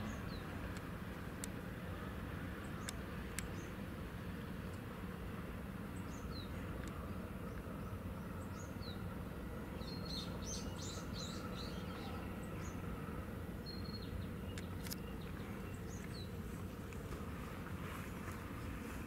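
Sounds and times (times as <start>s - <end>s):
small birds chirping: 0.0s - 0.6s, 9.7s - 13.0s, 13.6s - 17.2s
low background rumble: 0.0s - 19.0s.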